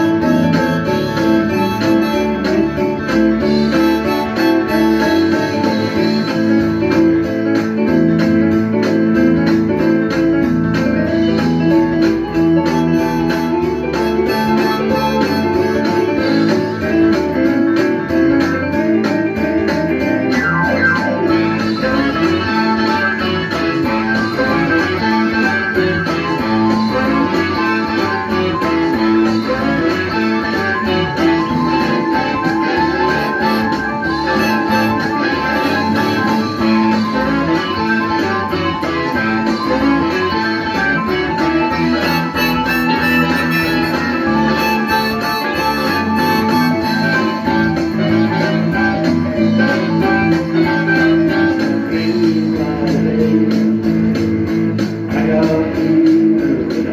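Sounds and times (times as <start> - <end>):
harmonica playing held notes: 0.0 - 6.7, 11.8 - 17.1, 20.4 - 51.7
guitar strumming: 0.0 - 8.6, 11.0 - 52.1.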